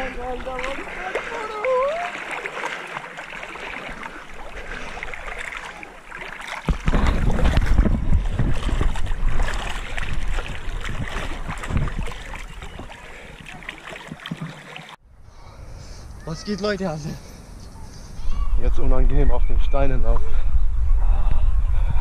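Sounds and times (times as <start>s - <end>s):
water lapping and splashing: 0.0s - 15.0s.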